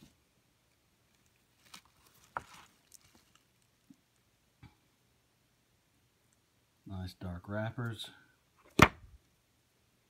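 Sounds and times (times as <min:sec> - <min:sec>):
soft taps and rustles: 0:01.2 - 0:04.0.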